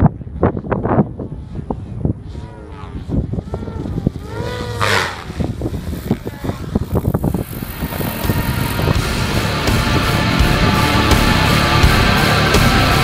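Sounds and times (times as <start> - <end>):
helicopter rotor noise: 0.0 - 13.0
rc helicopter motor whine: 0.3 - 9.6.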